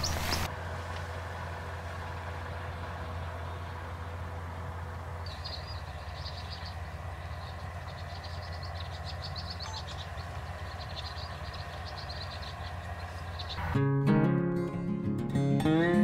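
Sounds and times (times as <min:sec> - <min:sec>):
steady low hum: 0:00.0 - 0:13.8
insects chirping in trills: 0:05.3 - 0:13.6.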